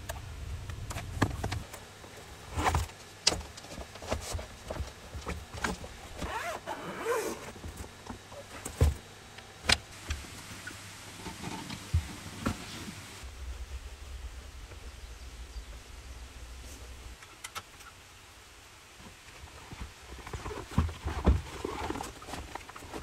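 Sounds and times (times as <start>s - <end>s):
low rumble: 0.0s - 1.6s, 13.2s - 17.4s
squeaky rubbing of folding table: 6.2s - 7.6s.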